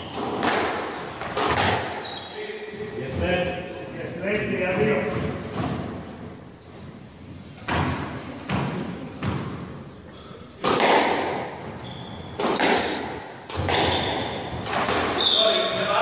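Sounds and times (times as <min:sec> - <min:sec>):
squash ball knocks with echo: 0:00.1 - 0:02.0, 0:10.6 - 0:11.6, 0:12.4 - 0:15.2.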